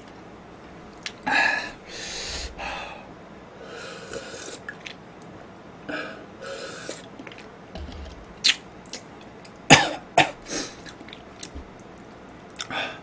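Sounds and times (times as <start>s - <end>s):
breathing: 1.3s - 4.6s, 5.9s - 7.1s.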